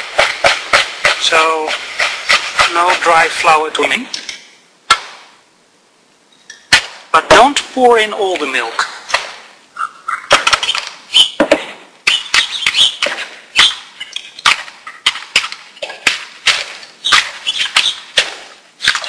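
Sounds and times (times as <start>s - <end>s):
whisk clacking against plastic bowl: 0.0s - 3.6s, 12.1s - 19.0s.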